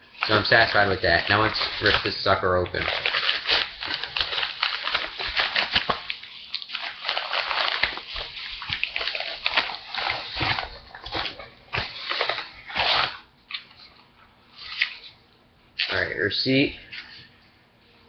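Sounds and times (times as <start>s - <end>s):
padded mailer being ripped open: 0.2s - 10.8s.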